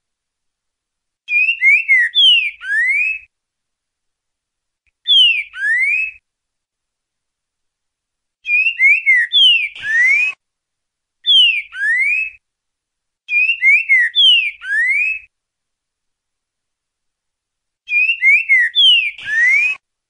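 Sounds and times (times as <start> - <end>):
bird singing whistled phrases: 1.3 - 3.3, 5.0 - 6.2, 8.4 - 10.4, 11.2 - 12.4, 13.3 - 15.3, 17.9 - 19.8.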